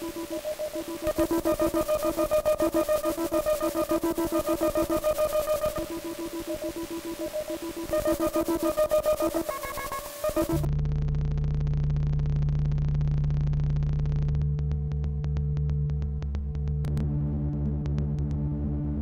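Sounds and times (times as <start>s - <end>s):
fuzzy synthesizer pulsing pattern: 0.0s - 10.8s
low buzzing drone: 10.3s - 19.0s.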